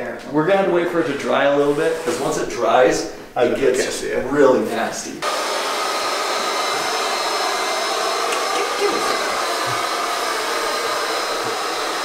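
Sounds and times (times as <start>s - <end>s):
hair dryer running: 5.2s - 12.0s.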